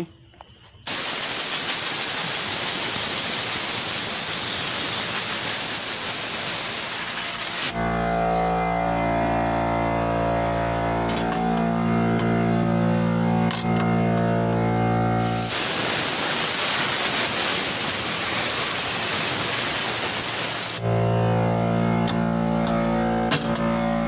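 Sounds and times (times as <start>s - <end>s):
compressed air hissing: 0.6s - 7.8s, 15.1s - 20.9s
music with long held tones: 7.8s - 15.3s, 20.8s - 24.0s.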